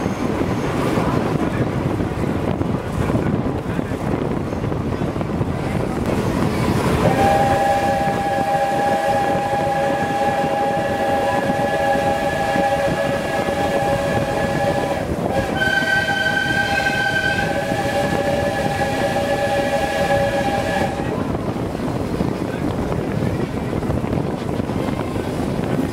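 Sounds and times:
train running noise: 0.0s - 25.9s
steam locomotive chime whistle: 7.0s - 21.1s.

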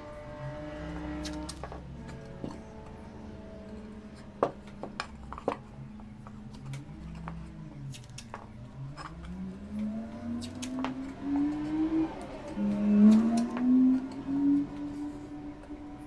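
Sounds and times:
ceramic tiles clicking and knocking: 3.7s - 9.9s.

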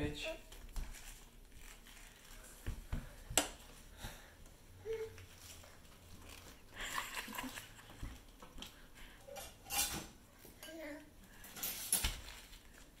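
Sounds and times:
dishes and cutlery clattering: 9.3s - 12.3s.

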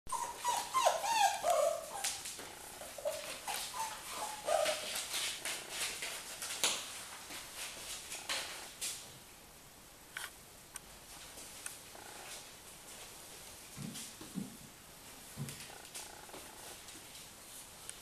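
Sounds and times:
puppies whimpering and yipping: 0.1s - 5.8s.

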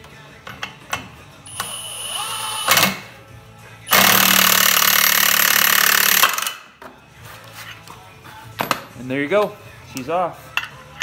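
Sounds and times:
impact wrench hammering: 3.9s - 6.6s.

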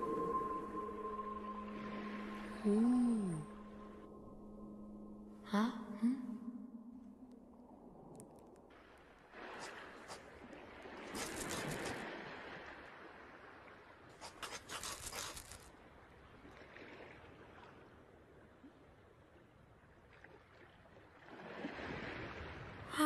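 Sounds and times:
rustling: 11.1s - 12.0s, 14.1s - 15.7s
scraping and clicking on sand: 11.1s - 12.0s, 14.1s - 15.7s.

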